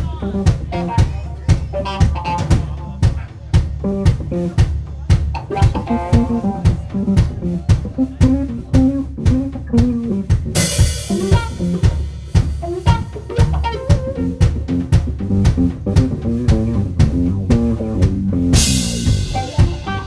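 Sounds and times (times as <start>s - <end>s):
bass line: 0.0s - 20.0s
drum kit beat: 0.0s - 20.0s
electric guitar: 5.4s - 12.0s, 12.6s - 20.0s.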